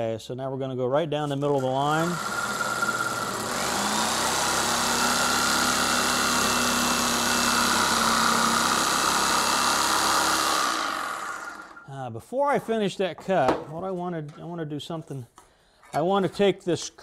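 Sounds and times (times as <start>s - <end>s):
electric jigsaw cutting wood: 1.8s - 11.9s.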